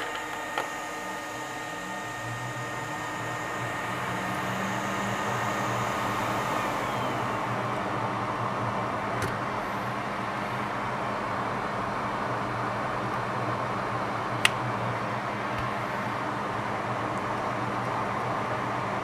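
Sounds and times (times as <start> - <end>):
low hum: 0.0 - 11.7
small fan blowing: 0.0 - 19.0.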